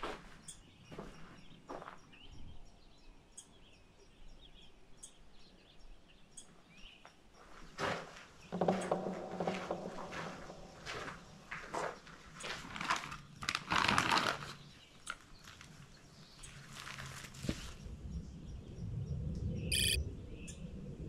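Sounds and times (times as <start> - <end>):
footsteps on woodland trail: 0.0 - 2.2, 7.0 - 17.8
crunching and rustling: 7.7 - 17.8
low hum: 18.5 - 21.0.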